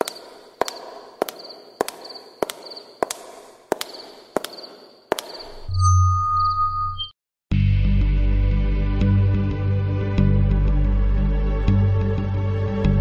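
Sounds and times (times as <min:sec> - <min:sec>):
sharp double clicks: 0:00.0 - 0:05.7.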